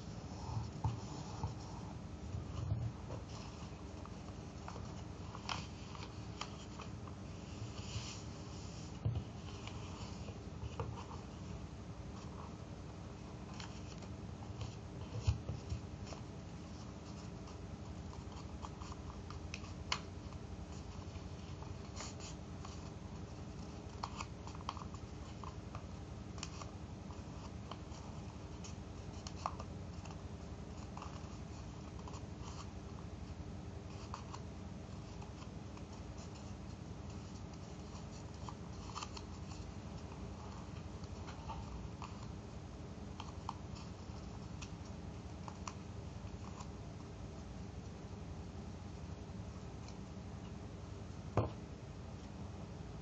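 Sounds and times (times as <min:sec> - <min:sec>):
low background hum: 0:00.0 - 0:53.0
paper crinkling: 0:35.0 - 0:42.4.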